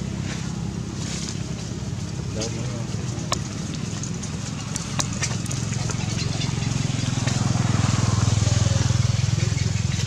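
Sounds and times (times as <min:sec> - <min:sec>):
passing vehicle engine rumble: 0:00.0 - 0:10.0.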